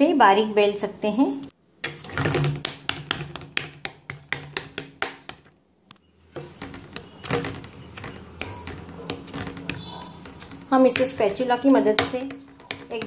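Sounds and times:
wooden spatula tapping steel plate: 1.8s - 5.5s, 6.4s - 13.0s.

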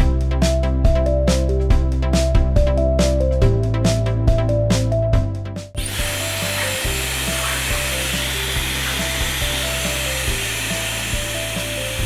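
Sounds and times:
background music with steady beat: 0.0s - 12.0s
hair dryer blowing: 5.8s - 12.0s.

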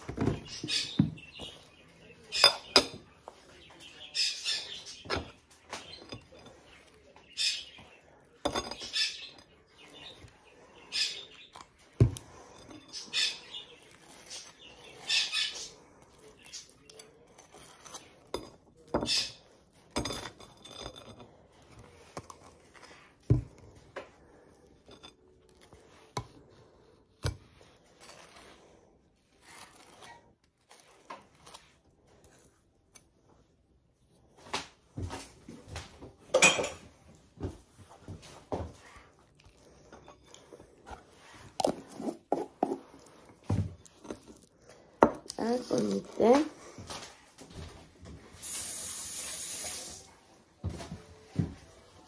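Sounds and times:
knife scraping ceramic plate: 8.4s - 10.2s, 10.9s - 26.4s, 39.8s - 43.3s.

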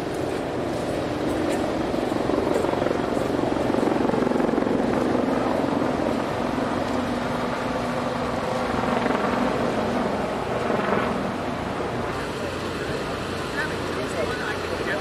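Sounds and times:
heavy engines droning: 0.0s - 15.0s.

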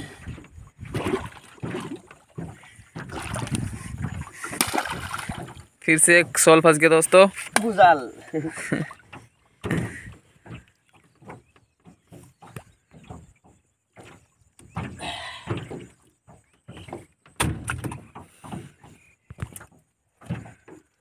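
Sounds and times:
knocks against wooden boat: 9.0s - 20.9s.

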